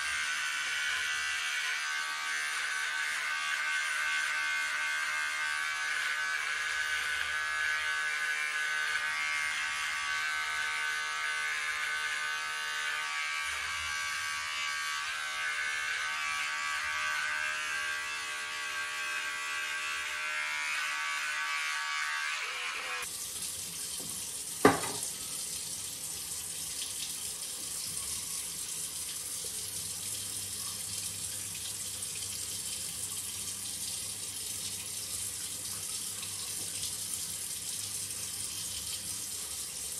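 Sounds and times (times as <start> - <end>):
electric trimmer buzzing: 0.0 - 23.1, 24.6 - 25.0
tap running water: 23.1 - 39.9
sharp knock: 24.6 - 25.0.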